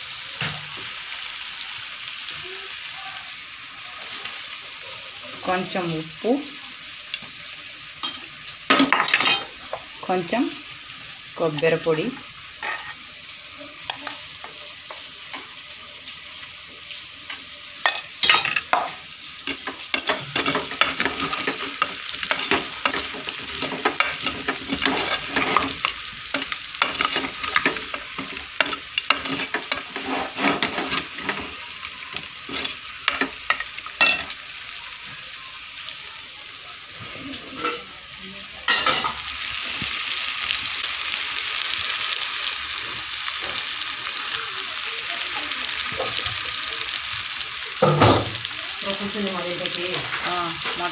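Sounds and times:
meat sizzling in a pot: 0.0 - 50.9
ladle scraping and clinking pot: 17.9 - 31.6.

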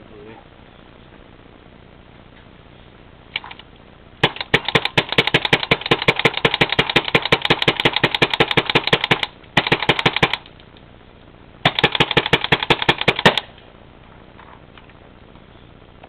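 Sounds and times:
paintball marker firing pops: 4.2 - 10.5, 11.7 - 13.5.

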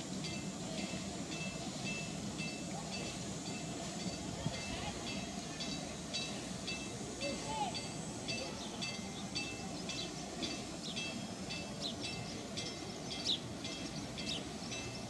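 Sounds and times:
bridge warning bell ringing: 0.0 - 15.0.

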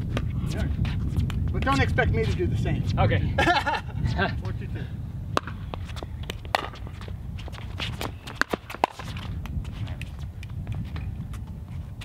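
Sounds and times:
paddle striking ball: 5.3 - 7.0, 7.9 - 9.3
shoes scuffing on court: 5.4 - 12.0.

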